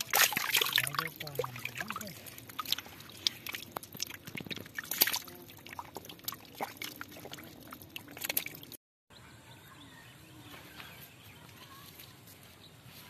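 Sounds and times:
fish splashing in shallow water: 0:00.0 - 0:08.8
faint bird chirps: 0:09.1 - 0:13.0.

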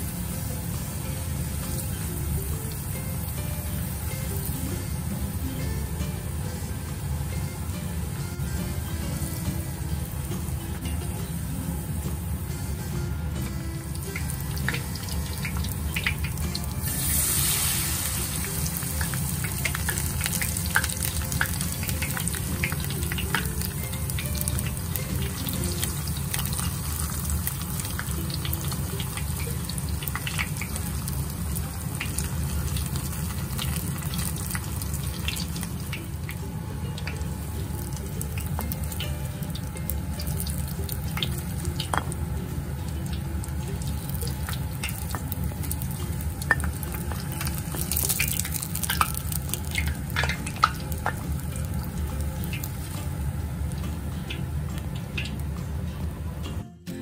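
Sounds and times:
tempura deep-frying in oil: 0:00.0 - 0:57.0.

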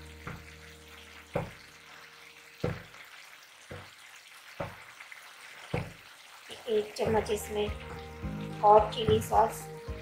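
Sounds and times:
vegetables sizzling in a pan: 0:00.0 - 0:10.0
steel ladle knocking on a pan: 0:01.3 - 0:01.6, 0:02.6 - 0:03.0, 0:04.6 - 0:04.8, 0:08.7 - 0:09.6.

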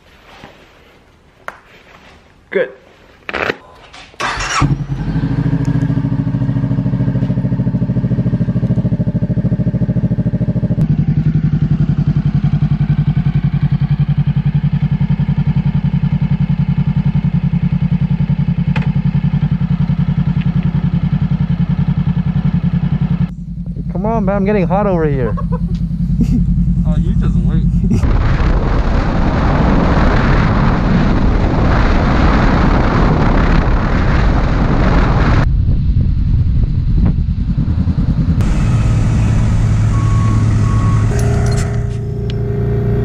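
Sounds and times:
motorcycle engine starting and idling: 0:03.9 - 0:28.0, 0:37.1 - 0:43.0.

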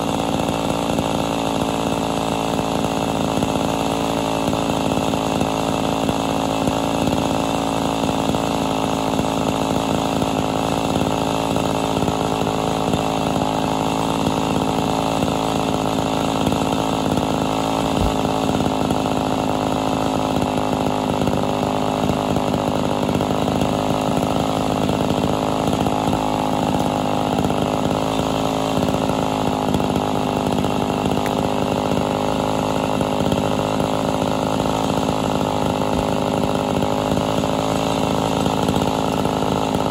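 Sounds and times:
chainsaw cutting wood: 0:00.0 - 0:39.9.

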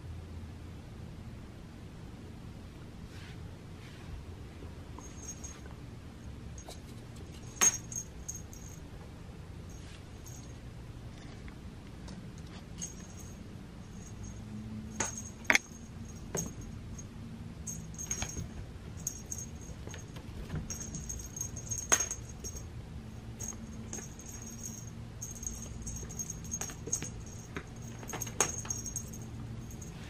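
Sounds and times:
cat toy jingling: 0:05.0 - 0:05.6, 0:07.3 - 0:08.8, 0:12.8 - 0:22.7, 0:23.3 - 0:30.0.

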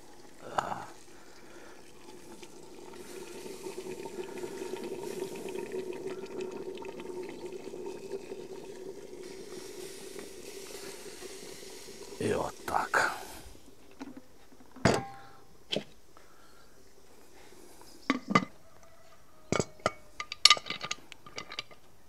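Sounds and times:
water pouring into a pot: 0:00.0 - 0:14.2.

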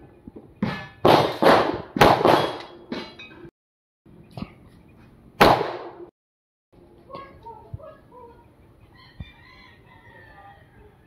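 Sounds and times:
pistol shots: 0:01.0 - 0:02.7, 0:05.4 - 0:06.1.

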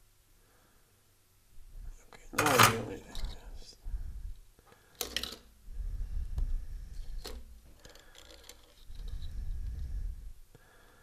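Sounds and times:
wires clicking and rustling: 0:04.7 - 0:05.6, 0:06.3 - 0:09.8.

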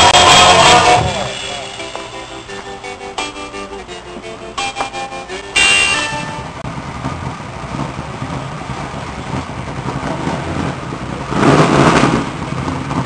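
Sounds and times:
rush of noise: 0:00.0 - 0:03.0, 0:05.2 - 0:13.0
car engine running: 0:00.0 - 0:13.0.

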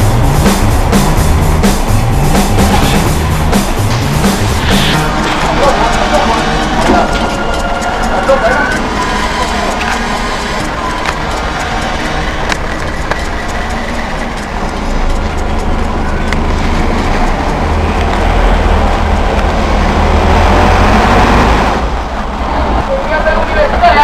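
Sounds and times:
bus engine rumble: 0:00.0 - 0:24.0
road noise: 0:00.0 - 0:24.0
rattling clicks: 0:05.0 - 0:18.5.

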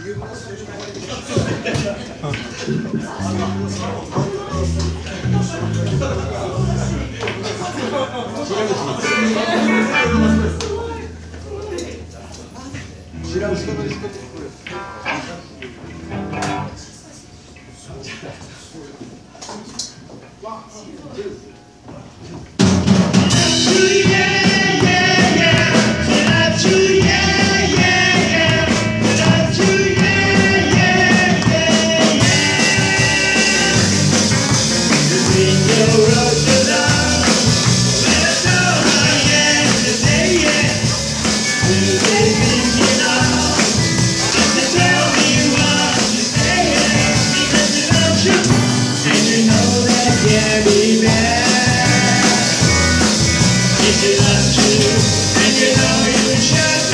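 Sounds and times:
live rock band playing: 0:08.5 - 0:16.8, 0:22.6 - 0:56.9
male lead vocal: 0:09.0 - 0:10.6, 0:23.3 - 0:56.9.

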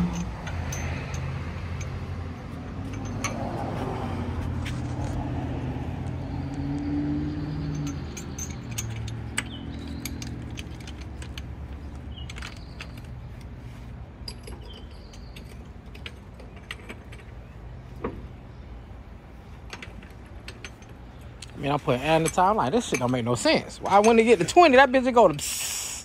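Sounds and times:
metal hardware clinking: 0:00.0 - 0:02.1, 0:02.7 - 0:03.6, 0:07.4 - 0:13.4, 0:14.2 - 0:18.3, 0:19.6 - 0:25.4.

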